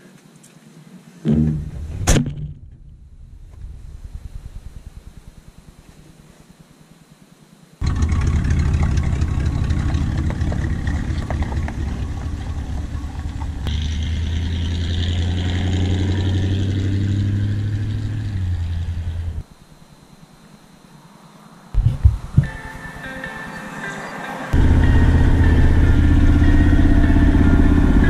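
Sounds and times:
truck engine running: 1.3 - 6.3, 7.8 - 19.4, 24.6 - 28.0.

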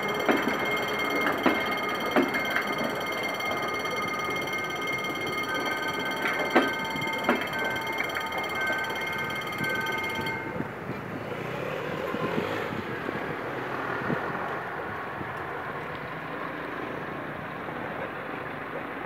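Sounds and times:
high steady ringing: 0.0 - 11.1
train wheels rumbling and clattering: 0.0 - 19.0.

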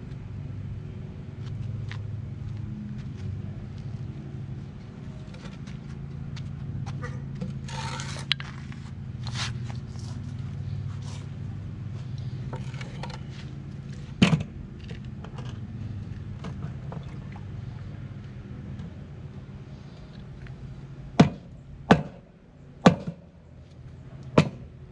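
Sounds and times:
steady low hum: 0.0 - 24.9
wooden board scraping on concrete: 7.4 - 10.2, 12.5 - 13.4.

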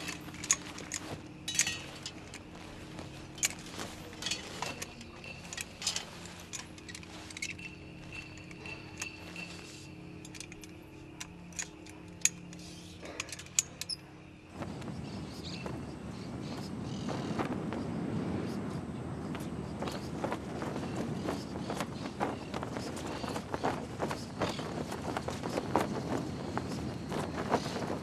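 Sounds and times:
metallic clinks and jingling: 0.0 - 14.5
low steady hum: 0.0 - 28.0.

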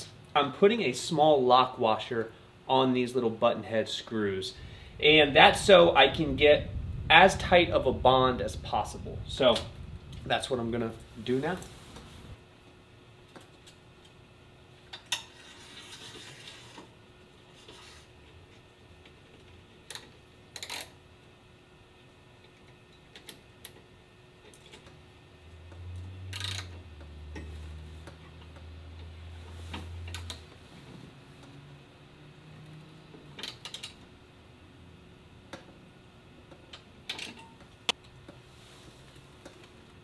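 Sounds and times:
low hum: 4.2 - 12.4.

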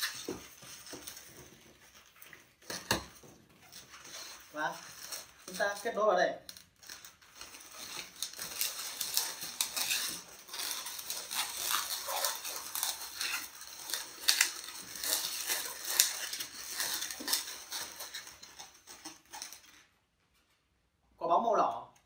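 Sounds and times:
balloons squeaking and rubbing: 0.0 - 19.8.

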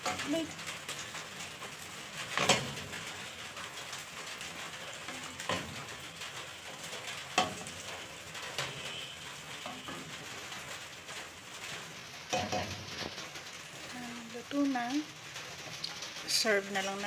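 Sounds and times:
wooden spatula stirring in a pot: 0.0 - 17.0.

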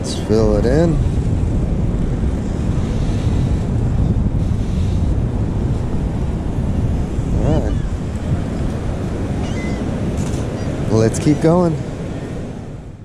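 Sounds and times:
ocean surf washing in: 0.0 - 13.0
wind buffeting microphone: 0.0 - 13.0.

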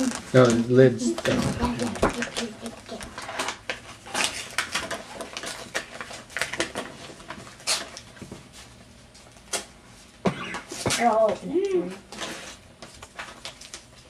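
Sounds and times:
paper crinkling and tearing: 0.0 - 8.1, 12.1 - 14.0.

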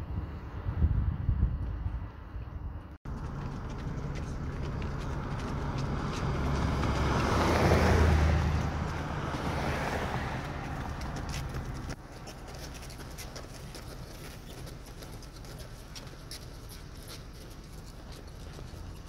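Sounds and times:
vehicle passing: 0.0 - 19.0.

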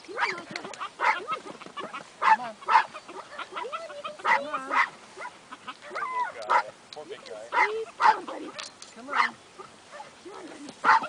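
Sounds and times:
dog barking: 1.0 - 6.7, 7.5 - 10.2.

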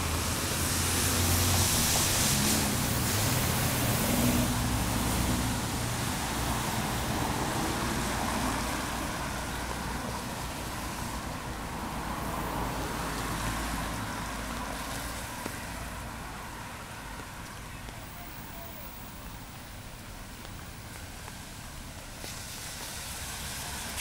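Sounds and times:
tyre hiss on wet road: 0.0 - 24.0
vehicle engine hum: 0.0 - 24.0.

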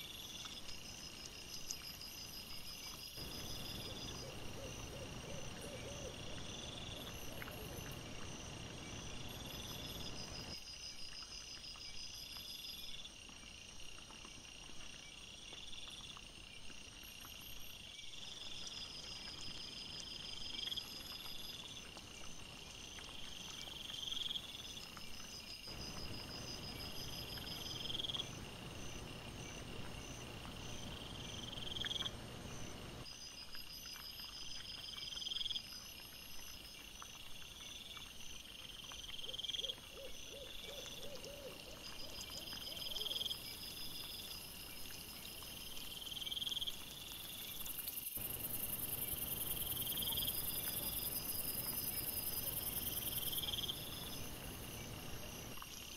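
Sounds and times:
faint fast dotted insect trill: 0.0 - 13.2, 15.0 - 55.9
high-pitched insect trill: 41.9 - 55.9.

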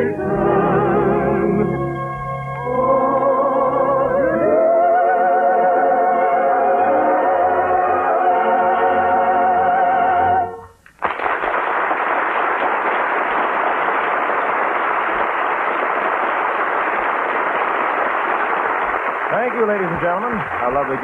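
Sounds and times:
audience applauding: 10.9 - 21.0.

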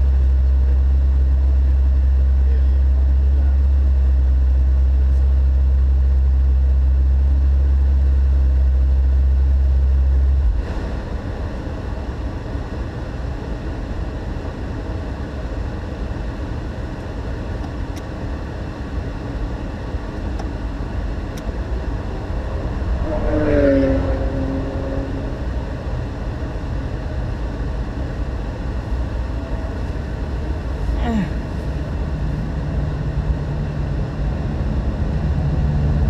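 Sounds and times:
car engine idling: 0.0 - 36.0
even rumbling noise: 20.4 - 36.0.

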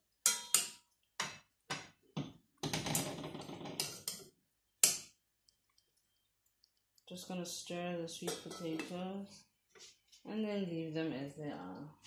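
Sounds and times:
stirring and scraping sweet potatoes: 5.5 - 10.3.

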